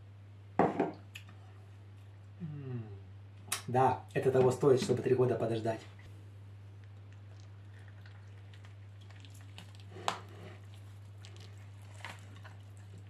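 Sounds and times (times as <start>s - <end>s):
steady low hum: 0.0s - 13.0s
hands tearing chicken: 6.8s - 13.0s.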